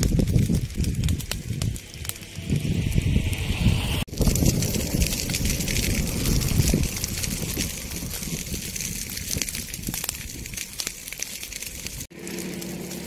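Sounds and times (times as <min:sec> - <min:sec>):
dry grass burning and crackling: 0:00.0 - 0:13.0.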